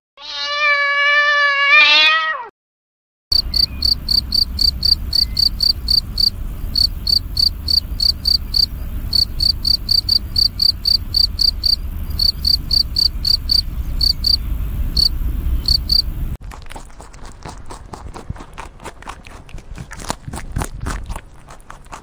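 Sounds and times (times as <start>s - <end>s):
cricket chirping: 3.3s - 16.3s
low steady rumble: 3.4s - 16.4s.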